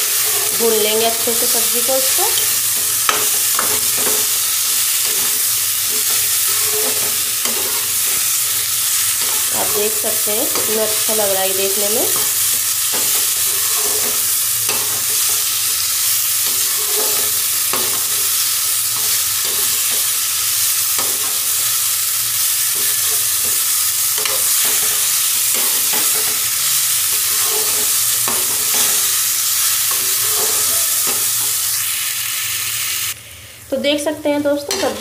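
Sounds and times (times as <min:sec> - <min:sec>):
vegetables sizzling in pan: 0:00.0 - 0:35.0
steel spatula scraping pan: 0:01.6 - 0:11.1, 0:11.8 - 0:15.5, 0:16.3 - 0:20.1, 0:24.2 - 0:31.6.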